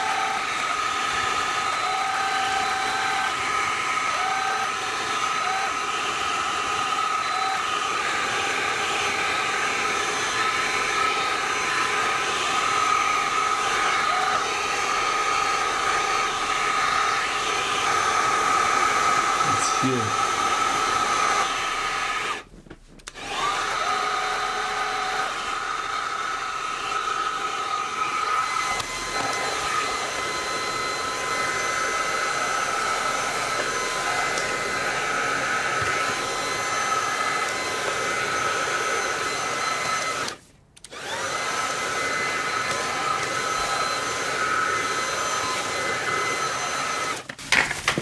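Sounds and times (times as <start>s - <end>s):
vacuum cleaner motor whine: 0.0s - 48.0s.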